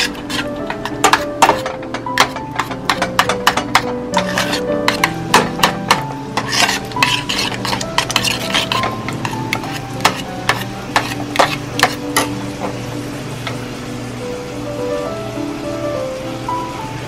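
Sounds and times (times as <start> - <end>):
metal spoon scraping saucepan: 0.0 - 5.2, 5.9 - 12.3
quiet background music: 0.0 - 17.0.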